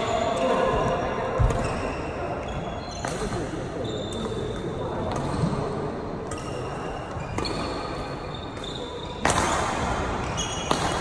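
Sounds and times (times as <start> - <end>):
shoe squeaks on floor: 1.4 - 5.4, 6.3 - 9.3, 10.2 - 11.0
racket hitting shuttlecock: 6.2 - 11.0.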